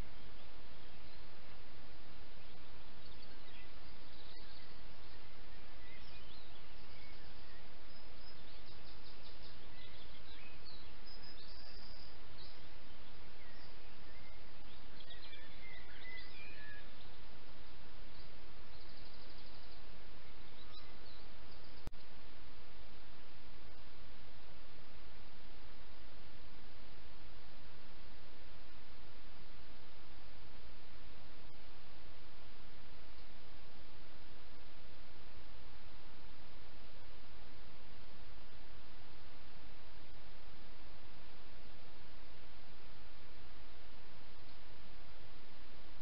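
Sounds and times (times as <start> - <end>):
birds chirping and trilling: 0.0 - 22.3
steady hiss: 0.0 - 46.0.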